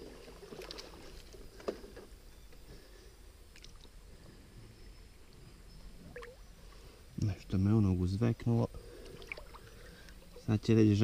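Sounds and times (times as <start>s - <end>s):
water sloshing: 0.0s - 1.4s, 6.0s - 6.4s.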